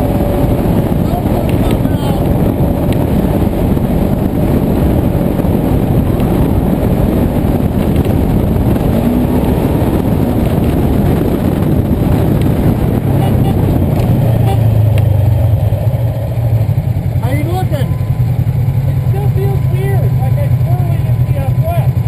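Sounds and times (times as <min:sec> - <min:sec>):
wind noise on camera: 0:00.0 - 0:16.7
vehicle engine running: 0:00.0 - 0:22.0.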